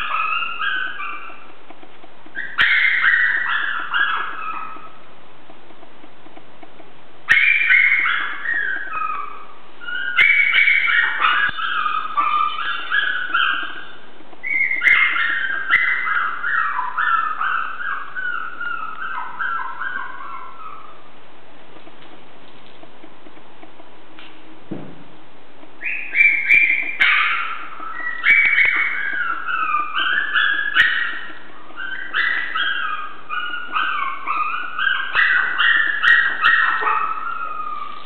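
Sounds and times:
puppies whimpering and yipping: 0.0s - 1.6s, 2.3s - 5.0s, 7.3s - 21.1s, 25.8s - 38.0s.

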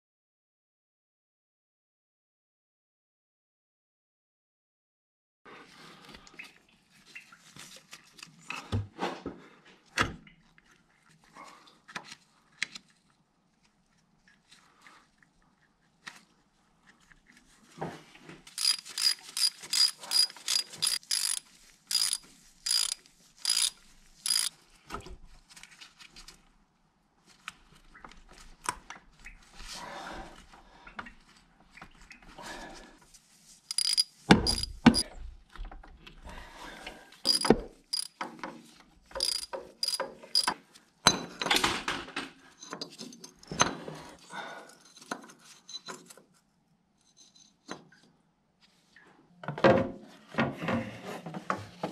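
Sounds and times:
hand tools clicking on metal: 18.5s - 24.5s, 33.7s - 35.0s, 37.3s - 38.2s, 39.2s - 40.6s.

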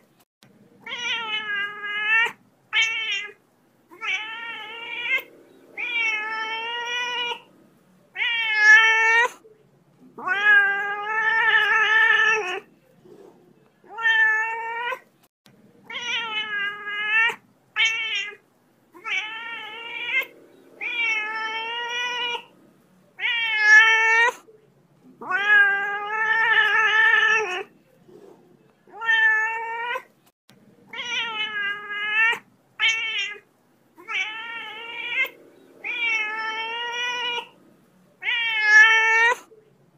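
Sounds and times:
cat meowing: 0.8s - 7.5s, 8.1s - 9.4s, 10.2s - 12.7s, 13.8s - 15.1s, 15.9s - 18.4s, 19.0s - 22.5s, 23.2s - 24.4s, 25.2s - 27.7s, 28.9s - 30.1s, 30.9s - 37.6s, 38.2s - 39.5s.

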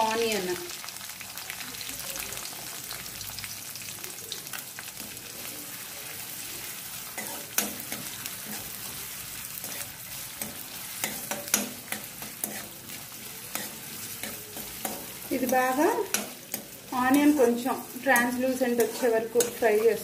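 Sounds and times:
onion sizzling in hot oil: 0.0s - 20.0s
metal spoon scraping pan: 7.0s - 20.0s.

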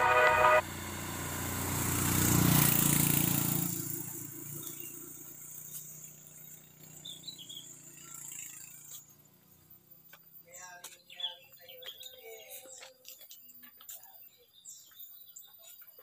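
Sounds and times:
background music: 0.0s - 0.6s
motor vehicle passing: 0.0s - 10.4s.

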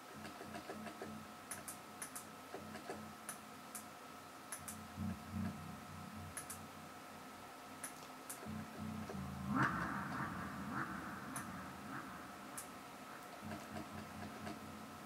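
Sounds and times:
computer mouse clicks: 0.0s - 3.9s, 4.5s - 4.8s, 6.3s - 6.6s, 7.8s - 9.2s, 11.3s - 11.5s, 12.5s - 14.7s
soft low tones: 0.0s - 15.0s
thin steady whine: 0.0s - 15.0s.

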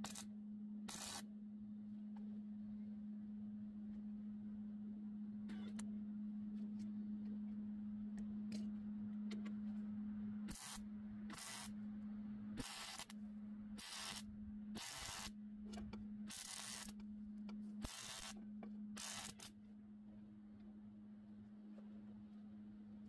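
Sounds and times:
welding arc crackle: 0.0s - 0.2s, 0.9s - 1.2s, 10.5s - 11.8s, 12.6s - 13.1s, 13.8s - 15.3s, 16.3s - 17.0s, 17.8s - 18.4s, 19.0s - 19.6s
steady low hum: 0.0s - 23.0s.

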